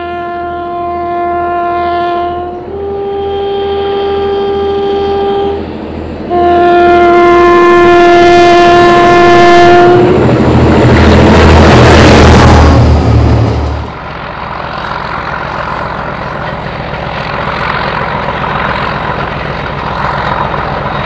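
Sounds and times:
two-tone train horn: 0:00.0 - 0:05.7, 0:06.3 - 0:10.3
train passing with rushing noise: 0:00.0 - 0:21.0.

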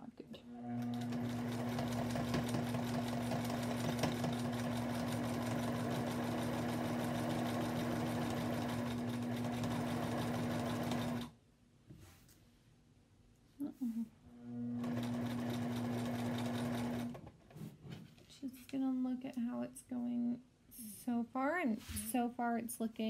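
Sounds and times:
sewing machine motor hum: 0:00.6 - 0:11.3, 0:14.4 - 0:17.3
rapid ticking of sewing needle: 0:00.7 - 0:11.3, 0:14.8 - 0:17.2.

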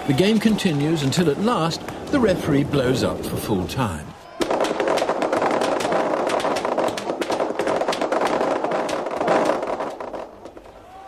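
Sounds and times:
crowd applauding: 0:00.0 - 0:02.2, 0:05.3 - 0:11.0.

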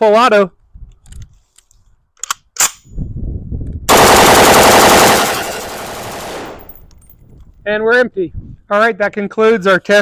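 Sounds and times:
full-auto rifle burst: 0:03.9 - 0:06.8.

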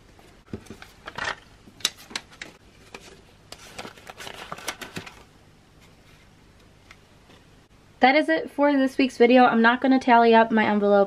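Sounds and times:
banknotes rustling: 0:00.4 - 0:05.3.

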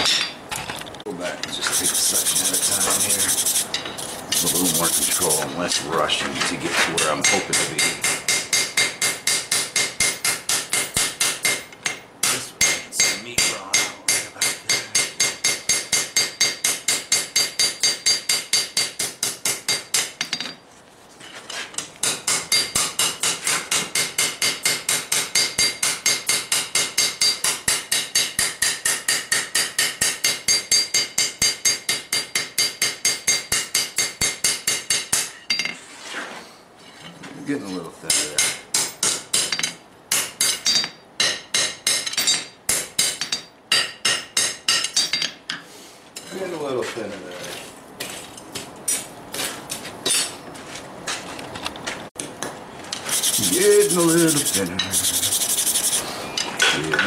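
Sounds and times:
hammer striking metal on anvil: 0:07.2 - 0:20.6, 0:22.0 - 0:35.8, 0:38.1 - 0:45.4.

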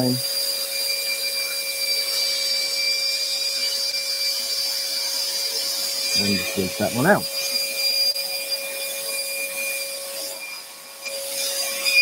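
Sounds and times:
scroll saw cutting wood: 0:00.0 - 0:12.0
dust extractor whine and air rush: 0:05.9 - 0:07.6
higher whine: 0:06.1 - 0:07.4.

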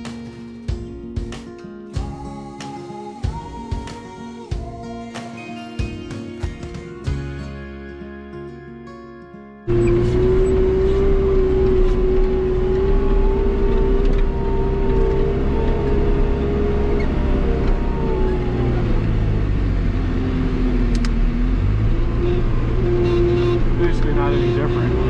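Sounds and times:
diesel engine running: 0:09.7 - 0:25.0.

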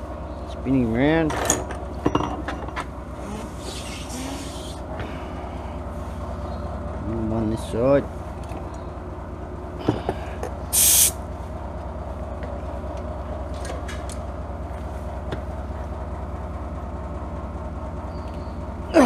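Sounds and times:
steady low hum: 0:00.0 - 0:19.0
loud hiss of air: 0:03.5 - 0:04.8, 0:10.7 - 0:11.2.

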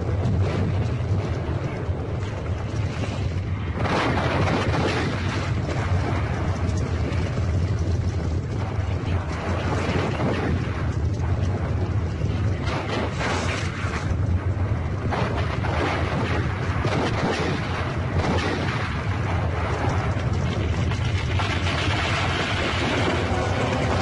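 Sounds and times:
scattered bangs and booms: 0:03.6 - 0:08.0, 0:08.6 - 0:24.0.

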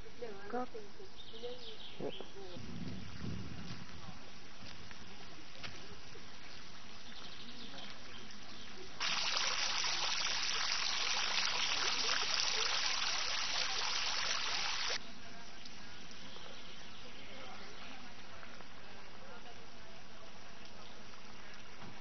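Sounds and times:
fountain water splashing: 0:07.9 - 0:15.0.

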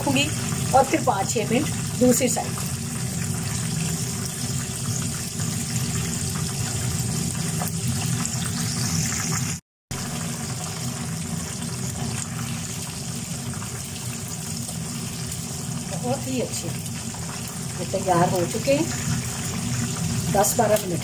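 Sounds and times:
oil sizzling and bubbling: 0:00.0 - 0:21.0.

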